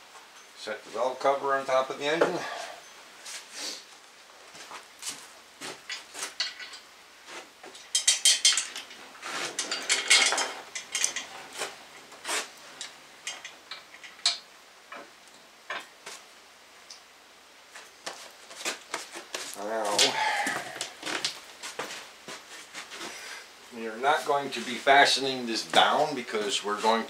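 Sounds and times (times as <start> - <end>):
metal rattle: 7.7 - 11.7
metal parts clinking: 7.8 - 11.3.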